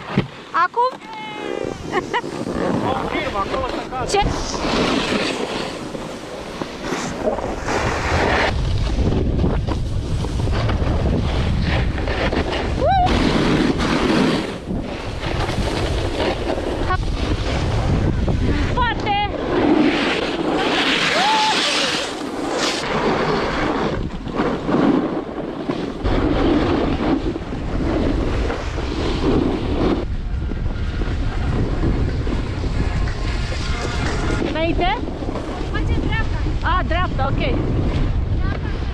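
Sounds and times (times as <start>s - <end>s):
snowboard scraping over snow: 0.0s - 38.9s
wind buffeting microphone: 1.2s - 38.9s
heavy low rumble: 1.4s - 20.8s.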